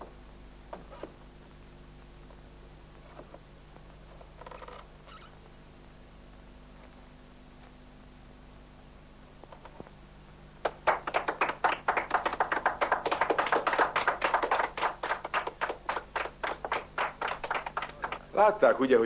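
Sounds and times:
small group applauding: 10.6s - 18.7s.

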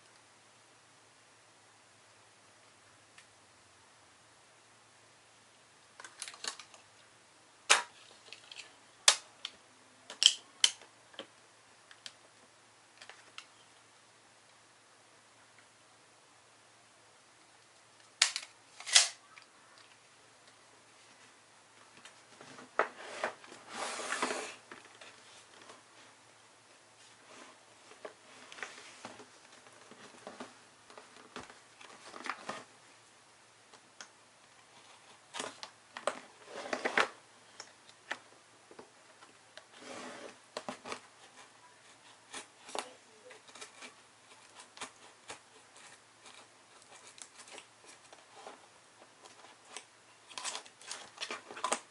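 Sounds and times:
cardboard box scraping on table: 22.8s - 24.6s, 36.4s - 37.1s, 39.7s - 40.4s.

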